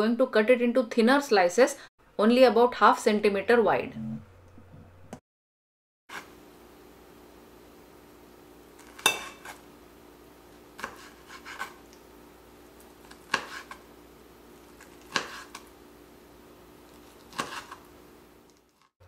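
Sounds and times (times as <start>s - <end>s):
knife cutting on plastic board: 10.8s - 11.9s, 13.0s - 13.8s, 14.8s - 15.7s, 17.0s - 17.8s.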